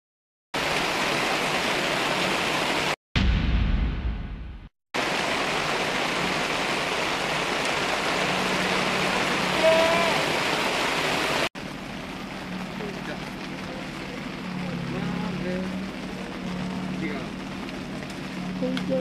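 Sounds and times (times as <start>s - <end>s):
heavy rain on pavement: 0.6s - 3.0s, 5.0s - 19.0s
deep rumble: 3.2s - 4.7s.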